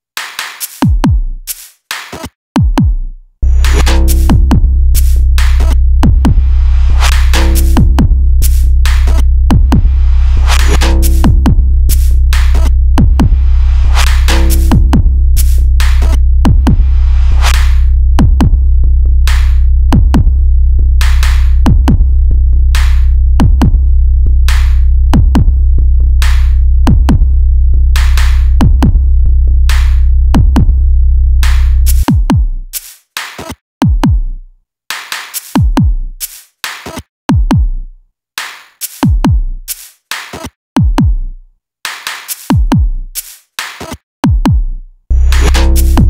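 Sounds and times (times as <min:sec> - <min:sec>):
drum machine beat: 0:00.2 - 0:17.6, 0:18.2 - 0:18.6, 0:19.3 - 0:20.3, 0:21.0 - 0:22.1, 0:23.4 - 0:23.8, 0:25.2 - 0:25.6, 0:26.9 - 0:27.3, 0:30.4 - 0:30.8, 0:31.9 - 0:37.8, 0:38.4 - 0:41.3, 0:41.9 - 0:46.0
heavy steady bass: 0:02.6 - 0:32.5, 0:44.5 - 0:46.0.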